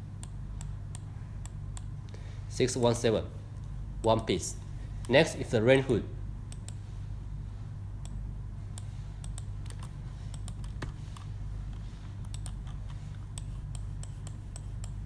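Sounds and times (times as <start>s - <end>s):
steady low hum: 0.0s - 15.0s
computer mouse clicking: 5.8s - 6.8s, 8.0s - 15.0s.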